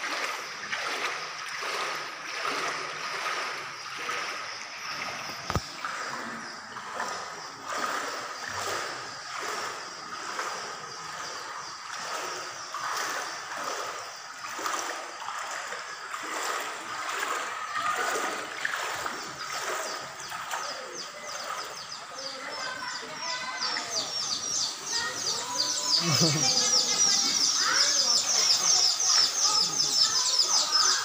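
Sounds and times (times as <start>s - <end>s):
footsteps wading through water: 0.0s - 31.0s.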